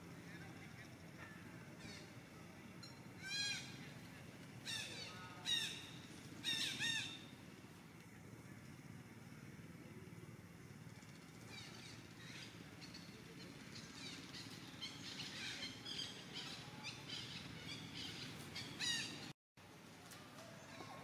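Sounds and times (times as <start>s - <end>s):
birds chirping: 0.1s - 7.6s, 10.9s - 19.3s.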